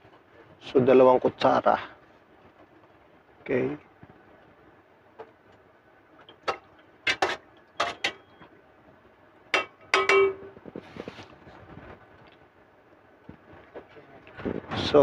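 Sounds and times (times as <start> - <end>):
spoon clinking against metal pot: 9.6 - 10.5.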